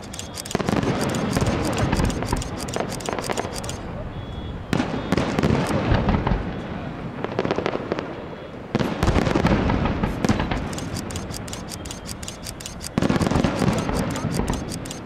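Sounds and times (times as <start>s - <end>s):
firework shells bursting with booms: 4.7s - 6.6s, 8.7s - 10.7s.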